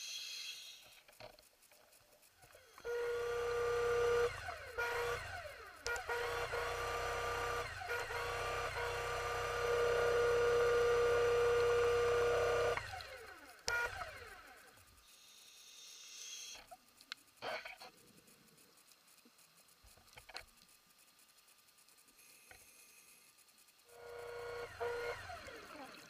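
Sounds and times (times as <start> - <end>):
underwater motor whine: 2.7 - 14.8, 23.9 - 26.0.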